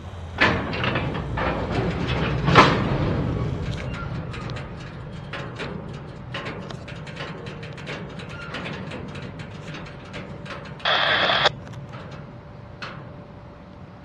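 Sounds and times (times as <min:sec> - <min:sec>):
train rumble: 0:00.0 - 0:14.0
train wheels clicking over rail joints: 0:00.0 - 0:14.0
loud hiss: 0:10.8 - 0:11.5.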